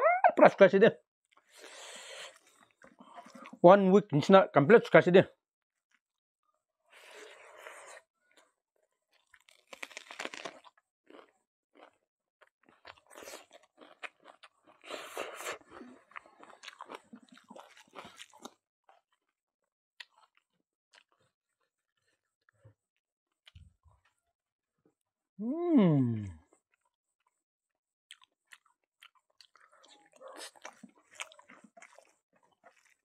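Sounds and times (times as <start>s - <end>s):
mouth chewing food: 1.3s - 3.6s, 9.1s - 19.3s, 28.1s - 33.0s.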